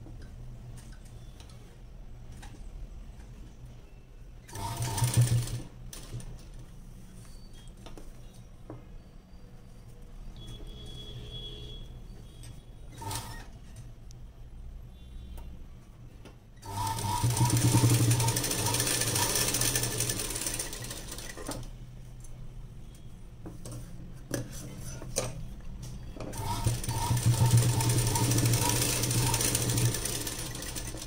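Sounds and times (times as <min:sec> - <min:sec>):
sewing machine stitching: 0:04.5 - 0:06.3, 0:12.9 - 0:13.5, 0:16.6 - 0:21.7, 0:26.3 - 0:31.0.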